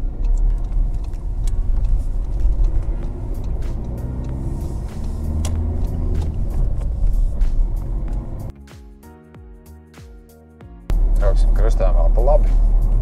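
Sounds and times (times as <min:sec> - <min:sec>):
car engine from inside cabin: 0:00.0 - 0:08.5
road noise: 0:00.0 - 0:08.5, 0:10.9 - 0:13.0
tyres clicking on wet road: 0:00.0 - 0:08.5.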